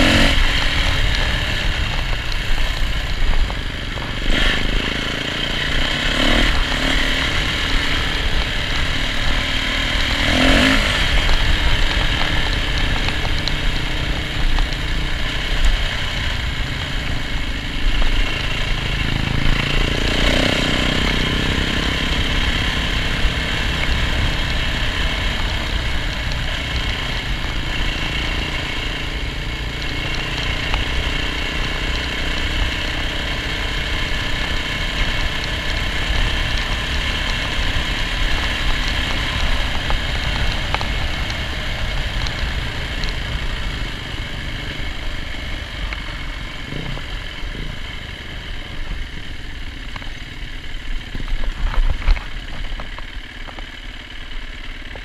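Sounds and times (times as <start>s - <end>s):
wind noise: 0.0s - 20.5s
dirt bike engine running: 0.0s - 55.0s.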